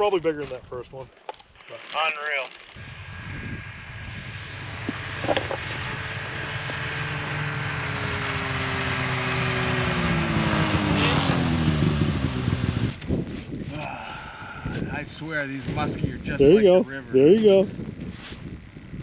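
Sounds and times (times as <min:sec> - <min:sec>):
snowmobile engine approaching: 0:02.8 - 0:13.5, 0:15.0 - 0:19.0.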